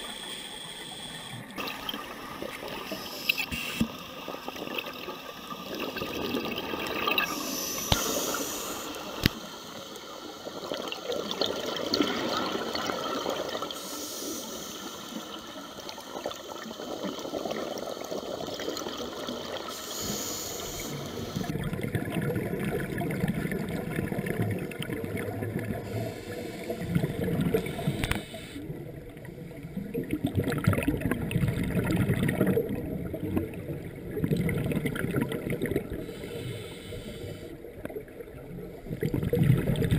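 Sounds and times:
diver breathing through regulator: 0:07.3 - 0:09.2, 0:19.7 - 0:21.5, 0:25.8 - 0:28.7, 0:35.9 - 0:37.6.

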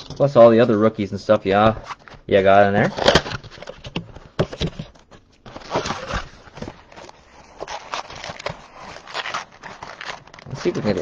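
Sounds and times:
cardboard box handled and opened: 0:02.8 - 0:11.0
cardboard taps scrapes and rustles: 0:03.4 - 0:09.0.

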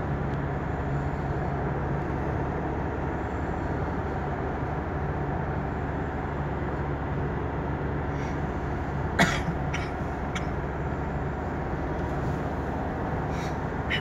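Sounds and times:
car road and engine noise: 0:00.0 - 0:14.0
person coughing: 0:09.2 - 0:10.5.

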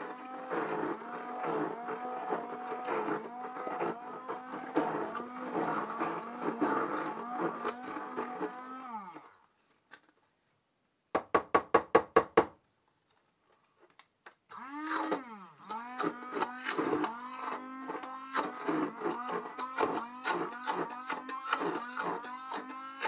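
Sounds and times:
immersion blender motor humming: 0:00.0 - 0:09.4, 0:14.5 - 0:23.0.

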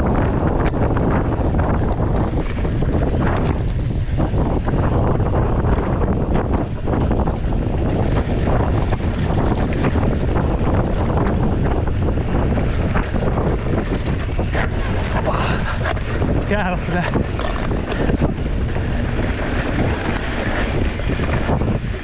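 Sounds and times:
bike tyres rumbling on dirt trail: 0:00.0 - 0:22.0
wind buffeting microphone: 0:00.0 - 0:22.0.

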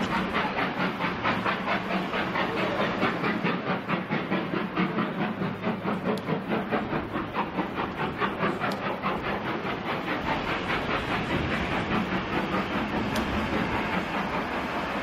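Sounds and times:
steam locomotive chuffing: 0:00.0 - 0:15.0.

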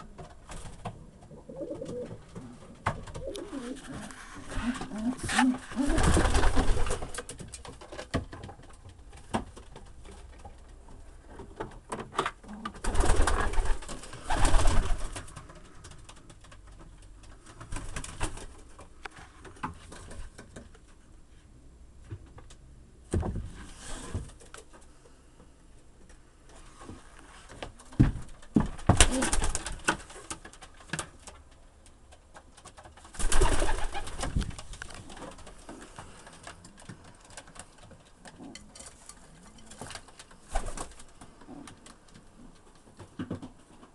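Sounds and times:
pigeons cooing: 0:01.0 - 0:06.8
loud rustling bursts: 0:03.4 - 0:07.4.

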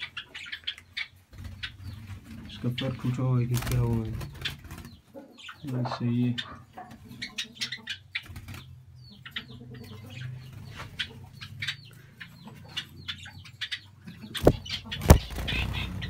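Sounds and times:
small birds chirping: 0:00.0 - 0:16.0
wings fluttering: 0:01.3 - 0:02.8, 0:03.4 - 0:05.0, 0:14.4 - 0:16.0.

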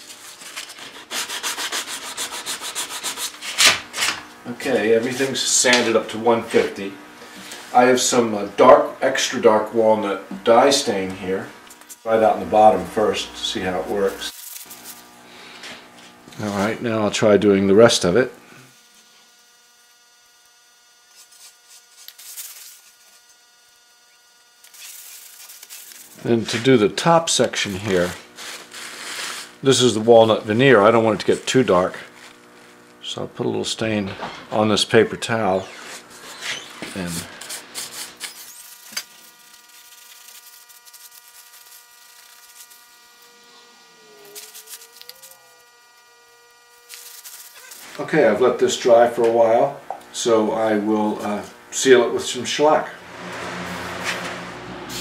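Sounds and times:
paper towel rubbing on wood: 0:00.0 - 0:06.8, 0:27.5 - 0:30.3, 0:35.6 - 0:38.6, 0:39.4 - 0:43.0
faint steady hum: 0:00.0 - 0:53.6.

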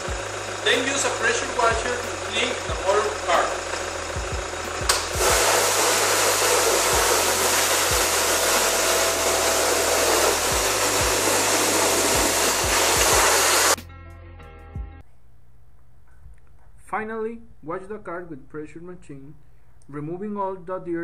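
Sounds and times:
low hum: 0:00.0 - 0:05.5
pressure washer spraying: 0:00.1 - 0:13.8.

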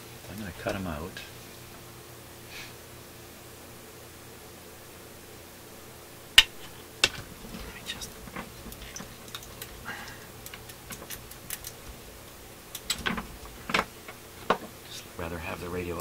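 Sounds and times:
wires rustling: 0:06.3 - 0:16.0
wire cutters snipping: 0:06.4 - 0:12.1.

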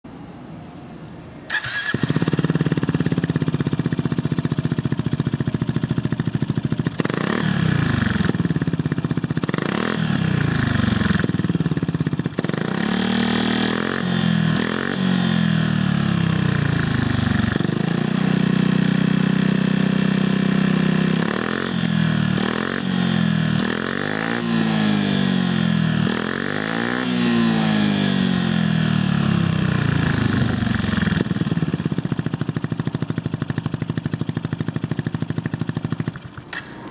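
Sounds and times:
scooter engine starting: 0:01.5 - 0:12.5, 0:29.3 - 0:36.9
scooter engine idling: 0:01.5 - 0:12.6, 0:15.1 - 0:24.0, 0:28.0 - 0:36.9
scooter engine revving: 0:01.5 - 0:36.9.

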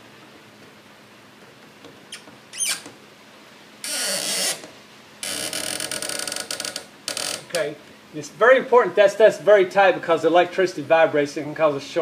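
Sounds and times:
screwdriver squeak: 0:02.1 - 0:02.9.

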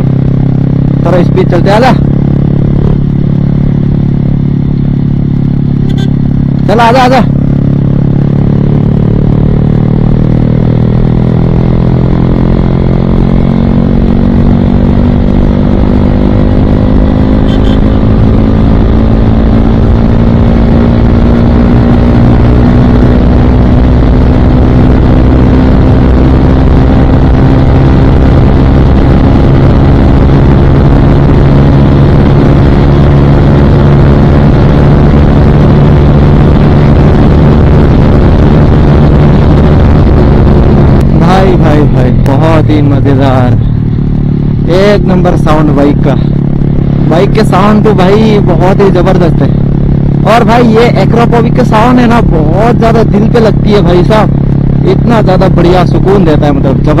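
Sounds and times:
motorcycle engine revving: 0:00.0 - 0:57.0
wind rushing over microphone: 0:18.0 - 0:45.2.

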